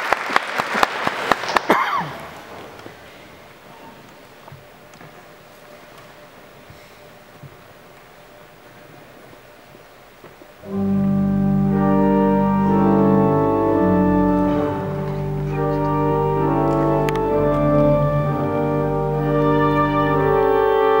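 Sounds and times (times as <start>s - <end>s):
pipe organ sustained chords: 4.3s - 21.0s.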